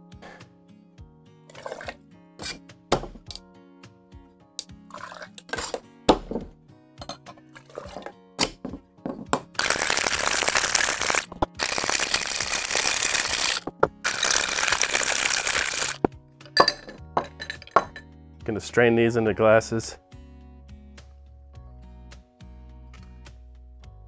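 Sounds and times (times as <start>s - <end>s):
ice rattling in shaker: 1.5s - 2.5s, 4.9s - 5.8s, 9.6s - 16.0s
ice clinking in metal tins: 1.5s - 2.6s, 4.9s - 5.8s, 9.6s - 18.0s.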